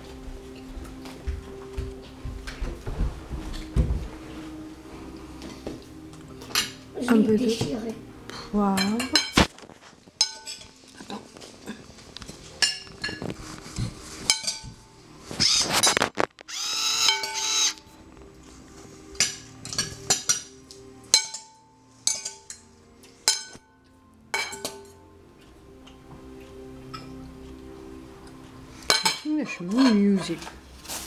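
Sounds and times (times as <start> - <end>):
cutlery and dishes clinking: 5.4 - 6.8, 8.8 - 16.3, 17.1 - 17.5, 19.2 - 27.2, 28.8 - 31.0.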